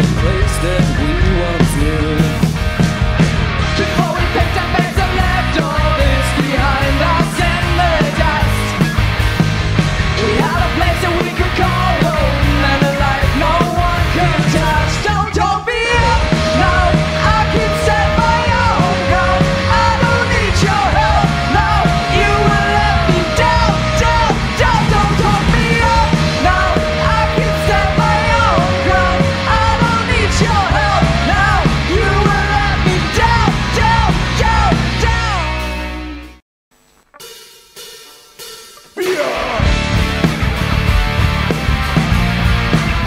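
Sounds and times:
bass guitar: 0:00.0 - 0:36.4, 0:39.0 - 0:43.0
electric guitars: 0:00.0 - 0:36.4, 0:38.8 - 0:43.0
drum kit: 0:00.0 - 0:43.0
lead singer holding notes: 0:10.2 - 0:35.5
shouted backing vocals: 0:10.2 - 0:35.5, 0:39.0 - 0:39.9.

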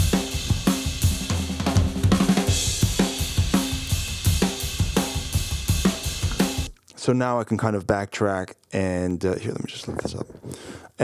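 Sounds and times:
drum kit playing fast punk beat: 0:00.0 - 0:06.7.

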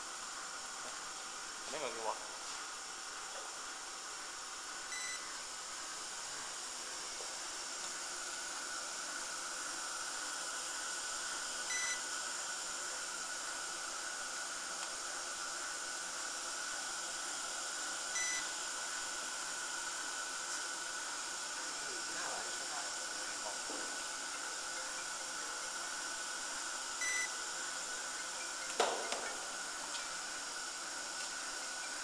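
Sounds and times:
short electronic beep: 0:04.9 - 0:05.3, 0:27.0 - 0:27.3
machine hiss: 0:13.4 - 0:32.0.

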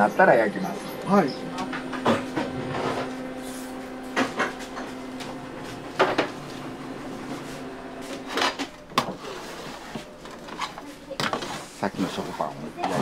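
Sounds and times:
machine hum: 0:00.0 - 0:13.0.

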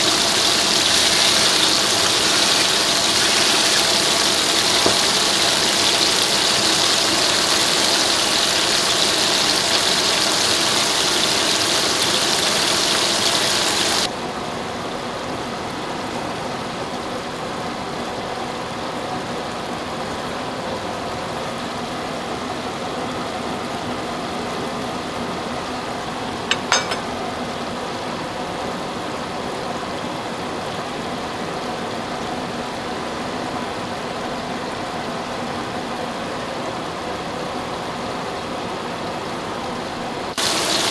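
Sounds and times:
patties sizzling in frying pan: 0:00.0 - 0:14.1, 0:40.3 - 0:40.9.

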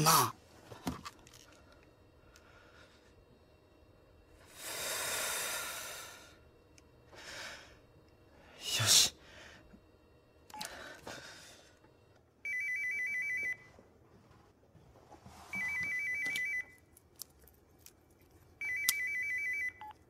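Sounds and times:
electronic telephone ringing: 0:12.4 - 0:13.7, 0:15.6 - 0:16.8, 0:18.6 - 0:20.0.

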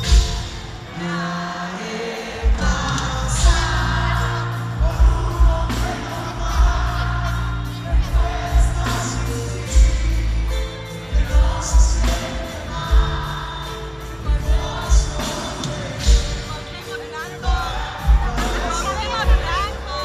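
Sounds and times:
man singing: 0:00.0 - 0:20.0.

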